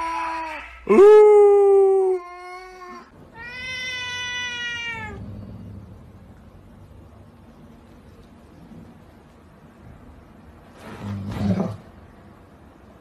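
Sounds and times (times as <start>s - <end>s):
cat meowing: 2.2s - 5.2s.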